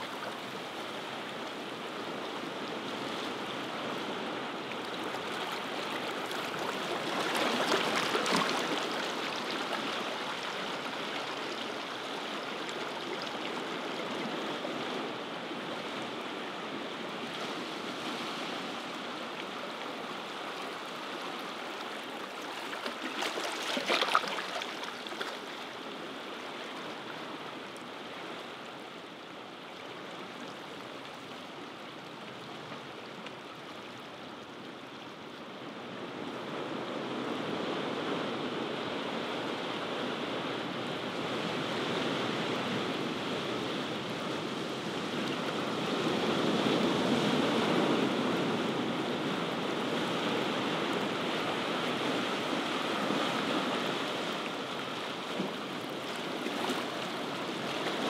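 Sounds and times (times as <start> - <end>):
ocean surf washing ashore: 35.9 - 58.0.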